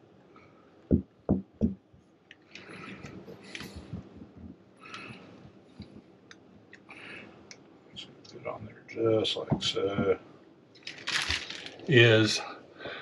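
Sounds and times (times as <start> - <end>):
dull knock: 0.9 - 1.8.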